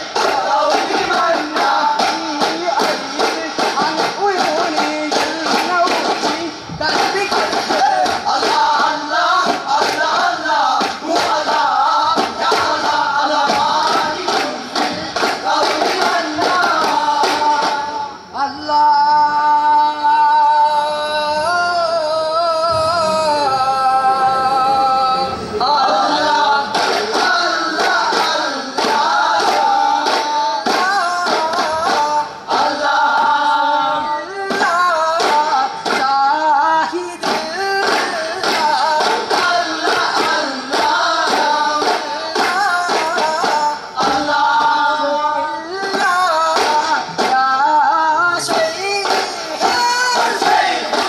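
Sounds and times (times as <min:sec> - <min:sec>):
frame drum beats: 0:00.0 - 0:18.0
men singing in chorus: 0:00.0 - 0:51.0.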